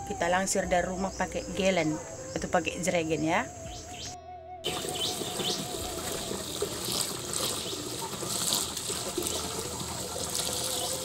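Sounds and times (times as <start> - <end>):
water pouring from a hose into a tank: 4.7 - 11.0.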